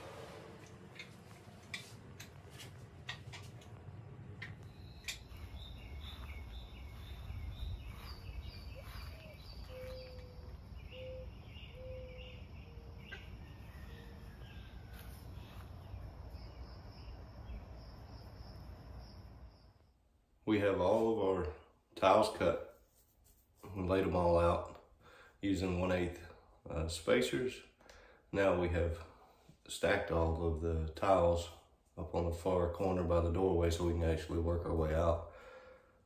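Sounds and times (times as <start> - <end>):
birds chirping: 0.9 - 19.9
insects: 4.7 - 20.0.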